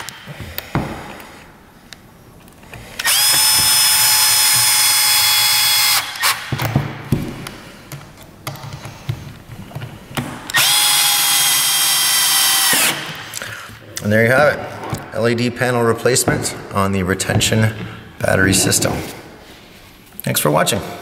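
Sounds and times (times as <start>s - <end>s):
cordless drill whining: 2.9s - 6.5s, 10.5s - 13.4s.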